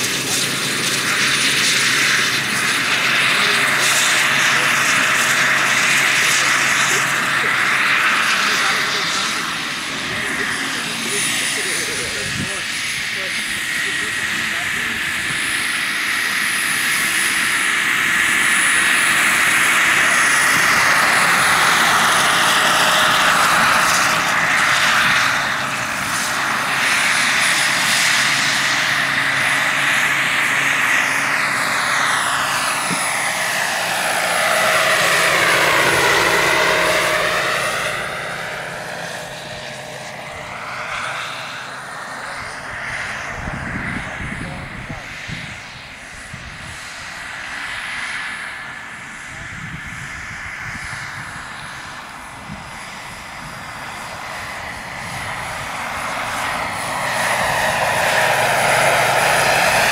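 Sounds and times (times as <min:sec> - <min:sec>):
model helicopter turbine whining: 0:00.0 - 0:59.9.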